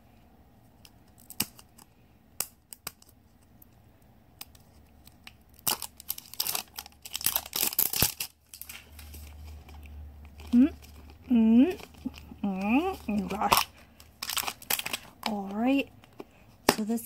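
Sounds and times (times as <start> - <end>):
plastic scraping and crinkling: 4.5 - 16.4.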